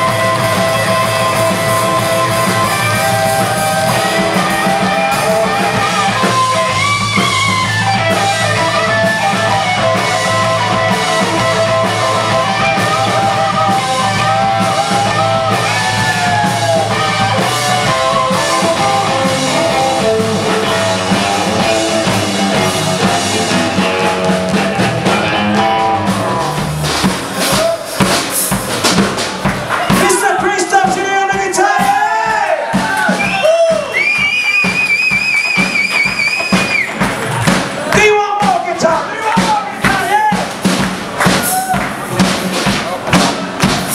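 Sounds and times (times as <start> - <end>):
electric guitar: 0.0 - 27.1
electric bass line: 0.0 - 27.8
rockabilly band playing: 0.0 - 43.9
sharp drum and guitar hits: 0.0 - 43.9.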